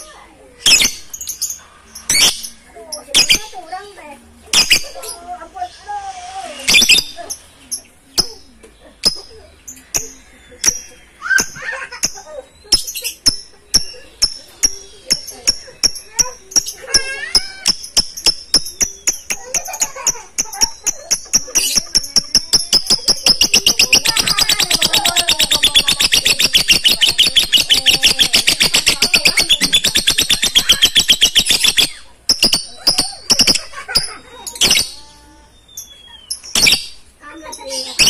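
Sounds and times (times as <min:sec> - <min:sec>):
lovebirds chattering chirps: 0:00.0 - 0:38.0.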